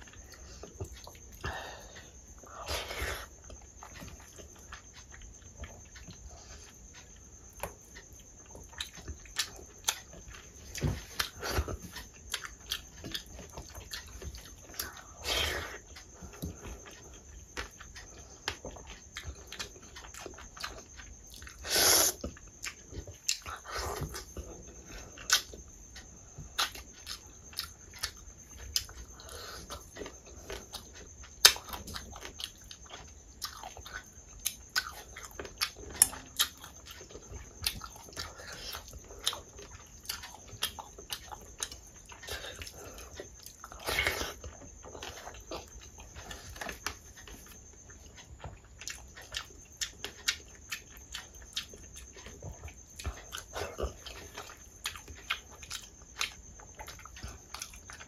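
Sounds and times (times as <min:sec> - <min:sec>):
chewing with wet lip smacks: 0:00.0 - 0:58.0.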